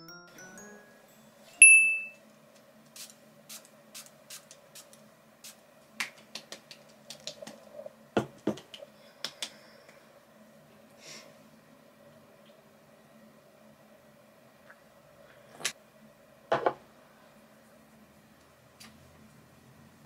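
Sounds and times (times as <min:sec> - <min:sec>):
bright chime: 0:00.0 - 0:02.2
faint steady hum: 0:00.0 - 0:20.0
hands patting the face: 0:06.0 - 0:10.0.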